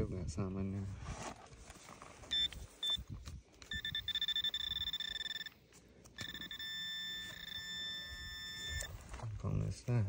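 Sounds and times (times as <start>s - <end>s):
metal detector pulsed beeps: 2.3s - 3.1s, 3.7s - 5.6s, 6.2s - 9.0s.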